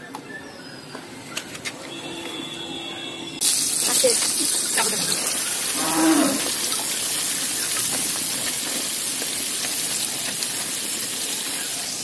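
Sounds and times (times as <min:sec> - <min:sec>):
onions sizzling in hot oil: 0:03.4 - 0:12.0.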